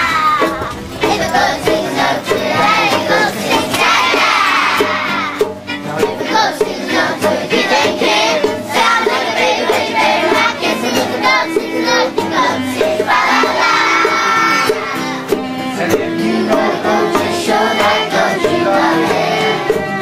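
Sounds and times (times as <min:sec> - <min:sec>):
bongo drums: 0:00.0 - 0:20.0
voices singing: 0:00.0 - 0:20.0.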